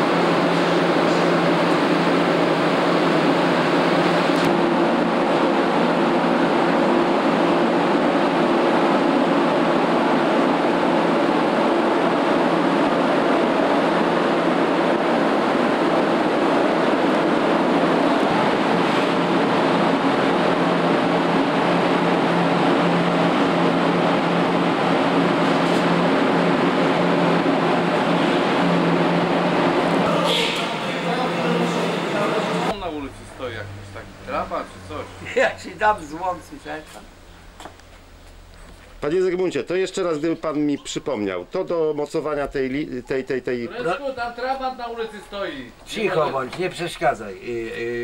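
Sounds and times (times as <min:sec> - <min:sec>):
ventilation fans rushing air: 0:00.0 - 0:48.0
low hum: 0:30.8 - 0:39.0.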